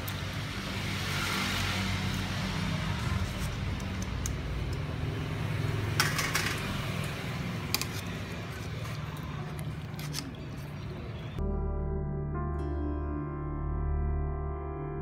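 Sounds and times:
music: 11.4 - 15.0.

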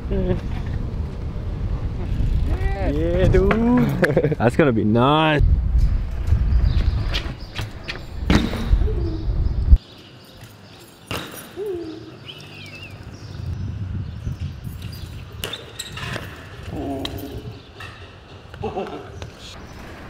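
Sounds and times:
wind rumble on microphone: 0.0 - 4.4, 5.4 - 9.8, 12.8 - 19.3.

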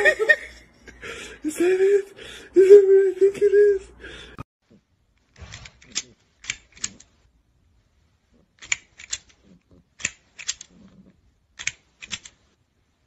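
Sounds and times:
plastic grabber toy clacking: 5.5 - 7.1, 8.6 - 9.4, 10.0 - 10.8, 11.6 - 12.4.

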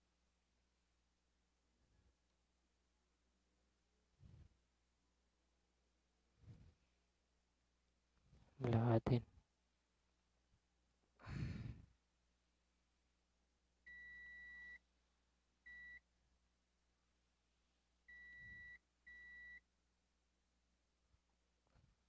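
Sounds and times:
multimeter continuity beeps: 13.9 - 14.8, 15.7 - 16.0, 18.1 - 19.6.

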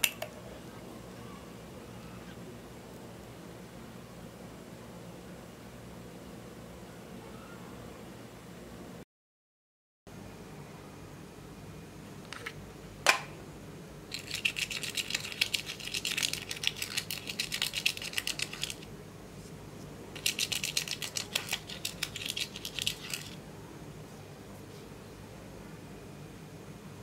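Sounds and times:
dry scratching of eyeshadow: 14.1 - 18.9, 20.2 - 23.4.

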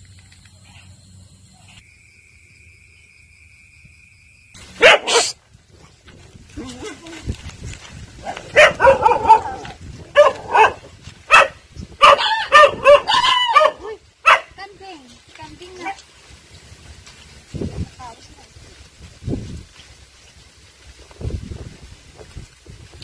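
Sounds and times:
dogs barking and yipping: 4.7 - 5.9, 8.2 - 14.6, 15.8 - 16.0.

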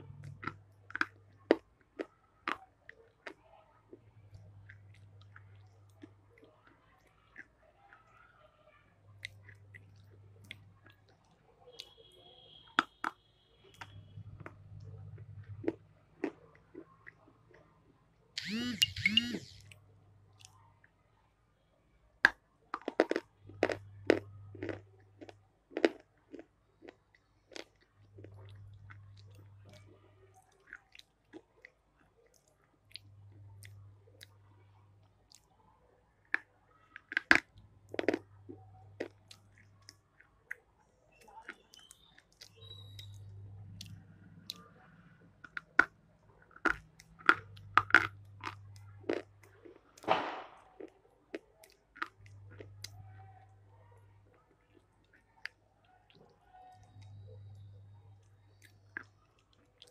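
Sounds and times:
quiet chewing: 0.0 - 8.4, 9.1 - 21.0, 22.3 - 59.9
person crunching hard food: 22.8 - 29.4, 37.0 - 38.3, 45.5 - 50.0, 50.8 - 53.0.

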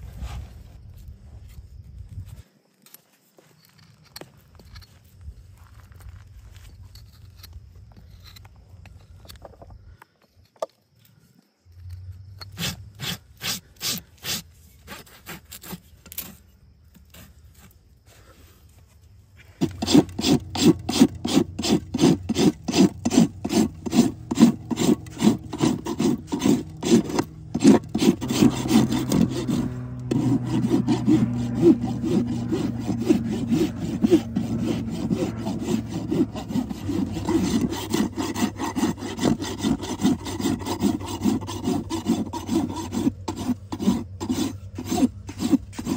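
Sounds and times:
hoof rasp filing a hoof: 11.8 - 18.5, 19.4 - 45.9.

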